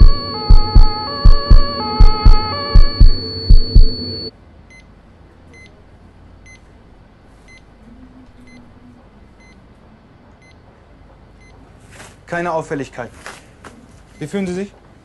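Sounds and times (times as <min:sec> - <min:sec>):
heart monitor beeping: 0:00.0 - 0:04.8
room hum: 0:00.0 - 0:15.0.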